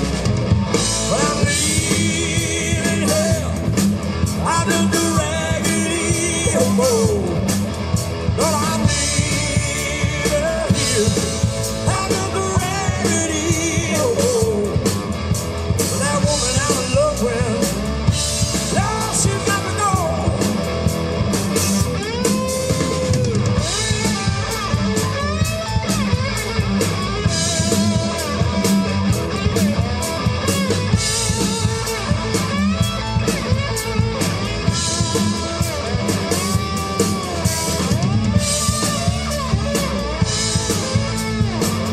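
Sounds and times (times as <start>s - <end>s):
bass guitar: 0.0s - 41.9s
drum kit beat: 0.0s - 41.9s
electric guitars: 0.0s - 41.9s
person singing: 1.0s - 3.8s, 4.4s - 7.6s, 8.4s - 15.0s, 18.7s - 20.6s.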